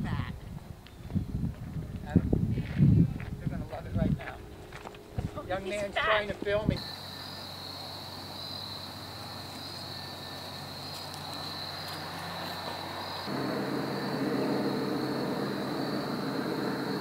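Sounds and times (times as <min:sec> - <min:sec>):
crickets trilling: 0:05.7 - 0:17.0.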